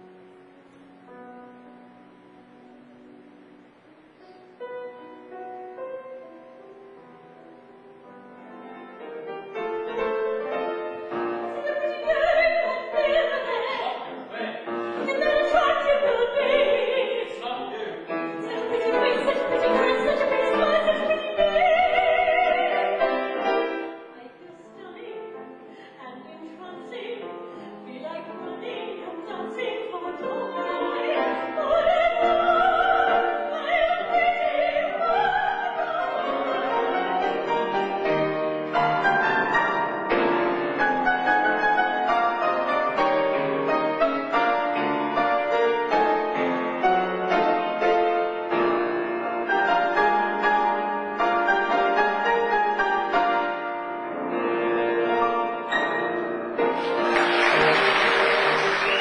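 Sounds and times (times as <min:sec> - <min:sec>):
grand piano: 0:00.0 - 0:59.0
woman singing operatic style: 0:11.5 - 0:14.4, 0:15.0 - 0:23.5, 0:24.1 - 0:37.7.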